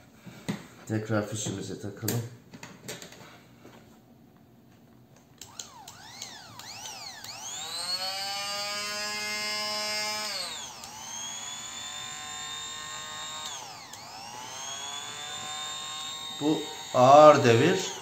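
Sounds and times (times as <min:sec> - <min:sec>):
hand blender motor whining: 0:05.4 - 0:18.0.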